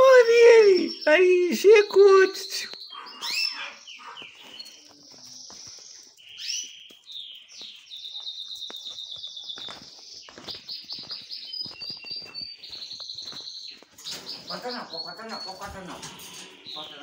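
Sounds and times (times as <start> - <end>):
canary singing: 0.0 - 17.0.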